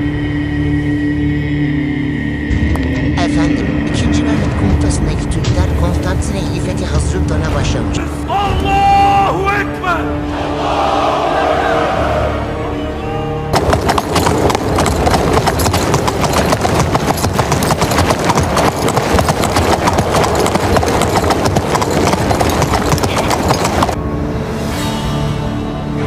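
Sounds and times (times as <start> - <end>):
horse hooves clattering: 13.6 - 24.0.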